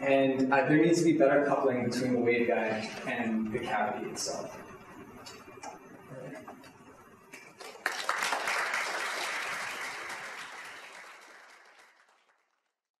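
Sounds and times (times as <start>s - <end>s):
audience applauding: 7.5s - 12.8s.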